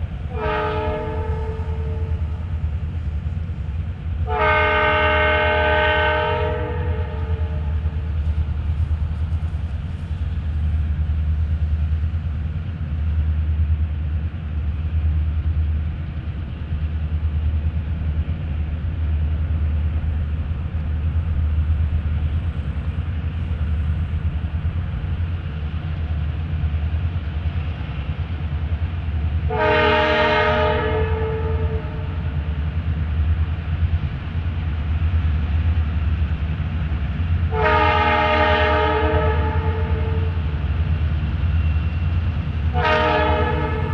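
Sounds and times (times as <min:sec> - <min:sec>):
diesel locomotive engine rumbling: 0:00.0 - 0:43.9
locomotive horn blasts: 0:00.3 - 0:02.4, 0:04.3 - 0:07.9, 0:29.5 - 0:32.2, 0:37.5 - 0:40.4, 0:42.7 - 0:43.9.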